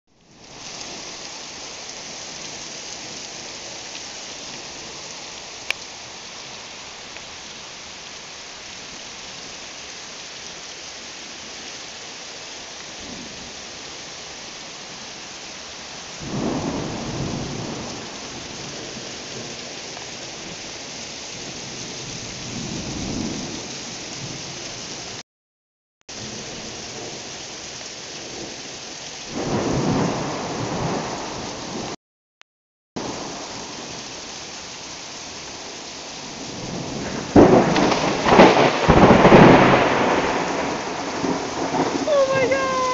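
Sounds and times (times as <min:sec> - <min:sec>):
heavy rain falling: 0:00.1 - 0:25.2, 0:26.1 - 0:32.0, 0:33.0 - 0:42.9
loud crack of thunder: 0:16.2 - 0:18.1, 0:29.3 - 0:32.0, 0:36.4 - 0:42.9
thunder rumbling: 0:29.3 - 0:32.0, 0:36.3 - 0:42.9.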